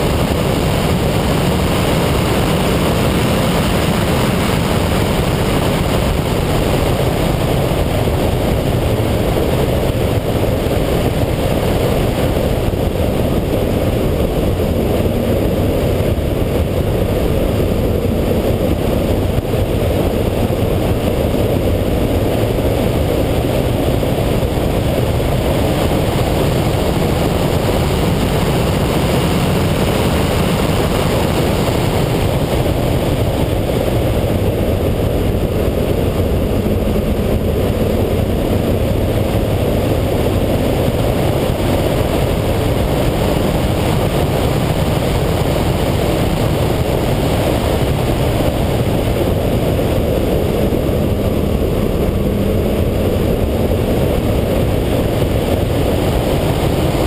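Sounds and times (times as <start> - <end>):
car engine running hard: 0.0 - 57.0
wind and road noise: 0.0 - 57.0.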